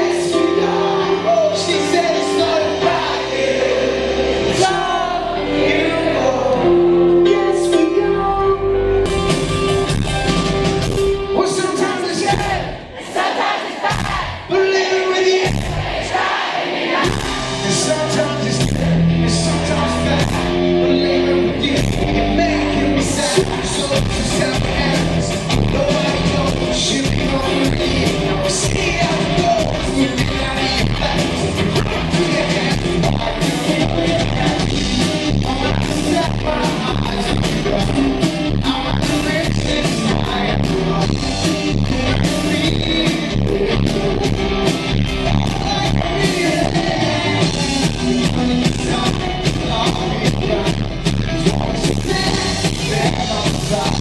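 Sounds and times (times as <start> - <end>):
man singing: 0.0 - 9.1, 11.4 - 12.9, 14.0 - 15.8, 17.0 - 54.0
electric guitars: 0.0 - 12.8, 17.0 - 54.0
drum beat: 12.2 - 12.8, 13.8 - 14.5, 15.4 - 16.3, 16.9 - 19.0, 23.4 - 54.0.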